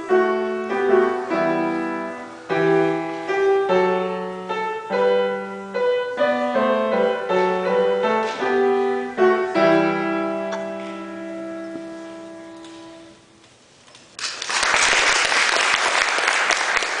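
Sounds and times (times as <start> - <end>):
piano playing: 0.0 - 13.4
audience applause: 14.2 - 17.0.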